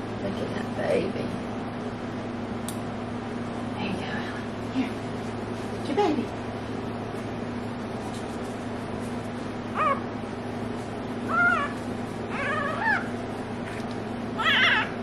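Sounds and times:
puppy squealing: 9.7 - 10.2, 11.3 - 15.0.

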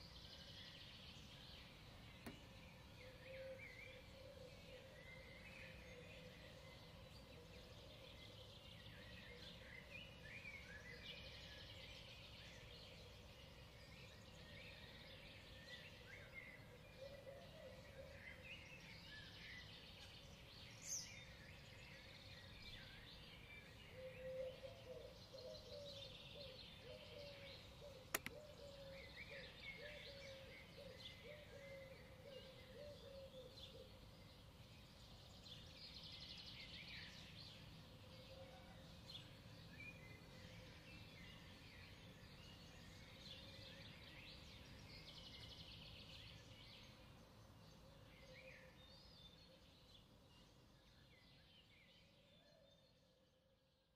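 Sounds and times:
small songbirds chirping: 0.0 - 53.9
sharp click: 28.1 - 28.4.

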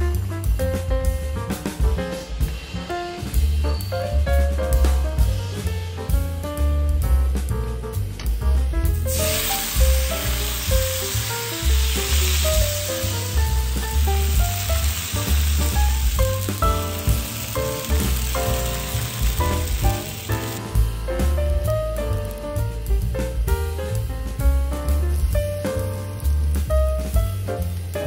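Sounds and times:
background music with bass: 0.0 - 28.0
batter sizzling on hot griddle: 9.1 - 21.6.

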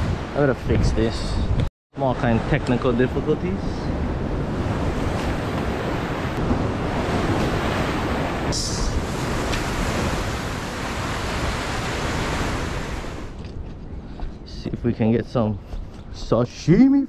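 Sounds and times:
wind on microphone: 0.0 - 1.7, 2.4 - 16.2
surf breaking on rocks: 4.4 - 13.4.

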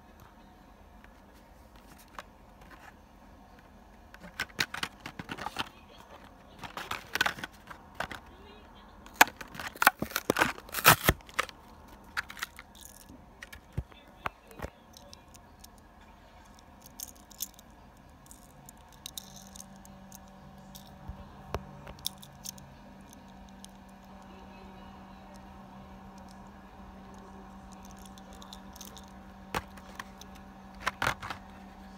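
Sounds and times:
packaging crinkling and clicking: 4.2 - 8.3, 9.1 - 15.4, 27.6 - 31.5
plastic packaging tearing: 9.1 - 13.0.

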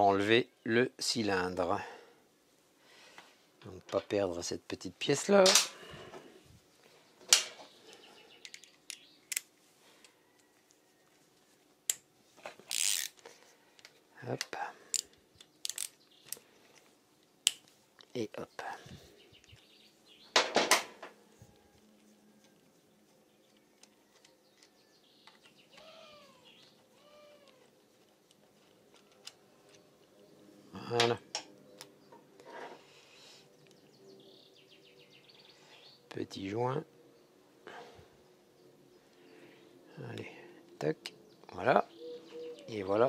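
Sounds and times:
tools tapping on a workbench: 20.4 - 21.2.

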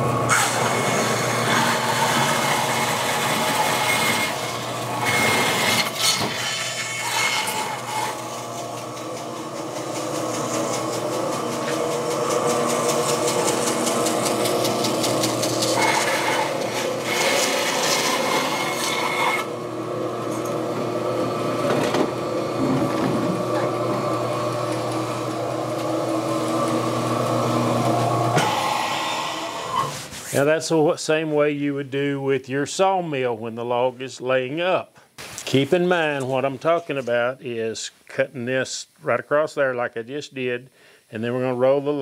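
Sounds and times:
bandsaw cutting through log: 0.0 - 30.1.

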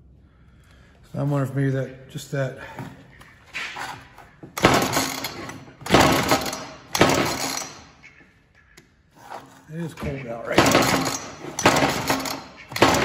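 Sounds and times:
chainsaw starter cord rattling: 4.6 - 7.8, 10.6 - 13.0.

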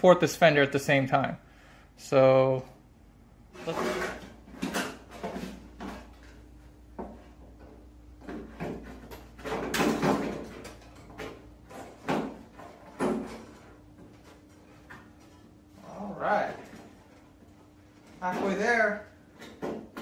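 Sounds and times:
metal rubbing and scraping: 3.5 - 6.0.

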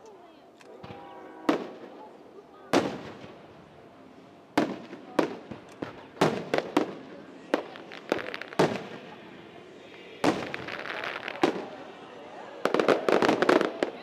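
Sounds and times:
fireworks bursting: 1.5 - 2.0, 2.7 - 3.8, 4.5 - 14.0.

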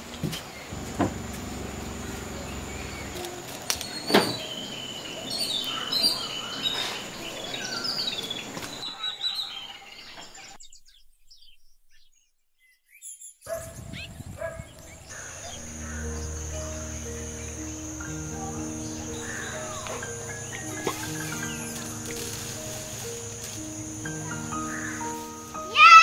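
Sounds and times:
birds chirping: 0.0 - 26.0
steady high whine: 0.7 - 4.0.

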